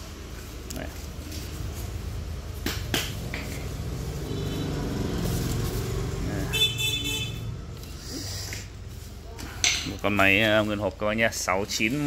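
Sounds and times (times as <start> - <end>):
foam and plastic wrap rustling: 0.0 - 2.6, 4.6 - 6.6
low traffic rumble: 0.0 - 12.0.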